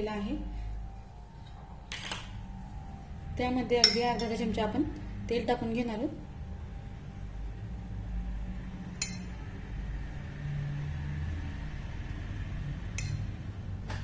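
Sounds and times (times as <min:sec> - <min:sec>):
spoon clinking against iron pan: 0:03.8 - 0:04.0, 0:09.0 - 0:09.3.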